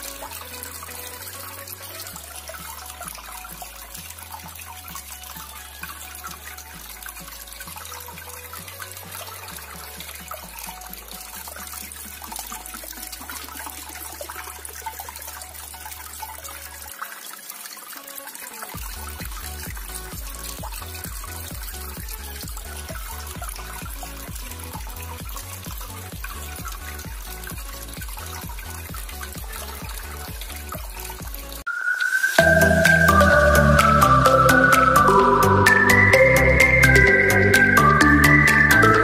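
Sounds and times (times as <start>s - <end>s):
fountain water splashing: 0.0s - 39.0s.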